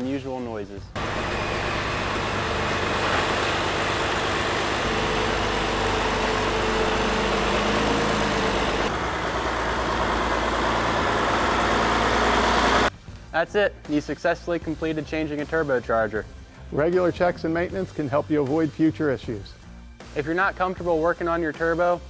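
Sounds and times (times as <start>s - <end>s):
diesel tractor engine running: 1.0s - 12.9s.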